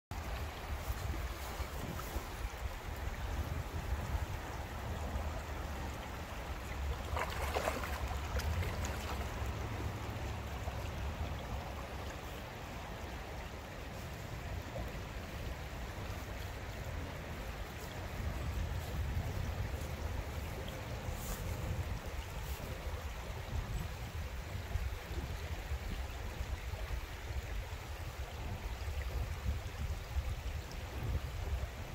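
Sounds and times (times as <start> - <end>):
river water rushing over stones: 0.1 - 31.9.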